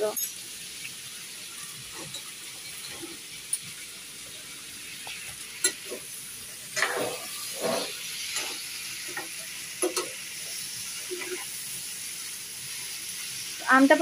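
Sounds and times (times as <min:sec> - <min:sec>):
mango pieces sizzling in a pan: 0:00.0 - 0:14.0
ladle scraping and clinking on pan: 0:06.8 - 0:08.6.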